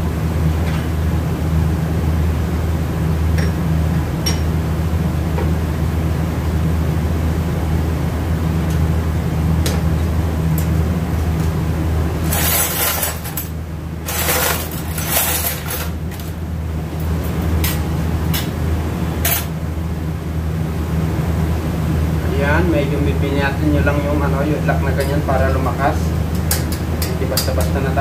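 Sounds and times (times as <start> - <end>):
low background hum: 0.0 - 28.0
metal scraping and rattling: 12.2 - 16.4
metal parts clinking: 14.1 - 16.3.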